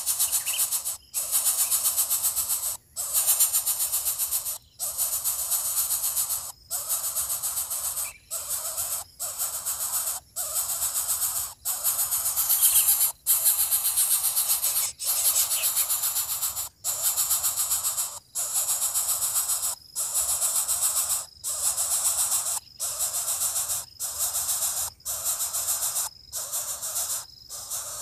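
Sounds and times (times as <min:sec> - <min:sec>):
rhythmic shaker rattle music: 0:11.9 - 0:17.4.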